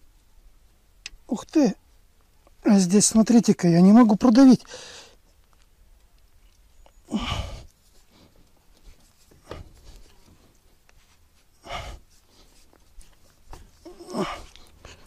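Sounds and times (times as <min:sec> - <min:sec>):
man breathing out hard: 0:04.7 - 0:05.2, 0:07.1 - 0:08.4, 0:11.6 - 0:12.5, 0:13.8 - 0:15.0.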